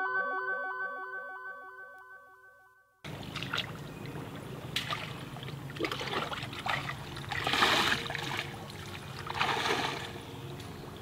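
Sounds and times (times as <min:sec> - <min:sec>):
water sloshing around wading legs: 0:03.1 - 0:11.0.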